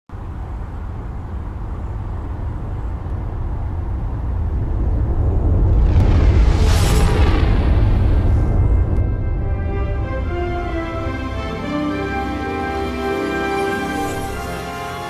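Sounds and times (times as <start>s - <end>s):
deep spaceship rumble: 2.9s - 11.0s.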